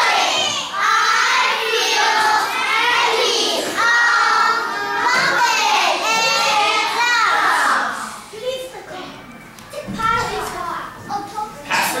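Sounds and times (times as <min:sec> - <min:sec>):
children calling out in unison: 0:00.0 - 0:08.2.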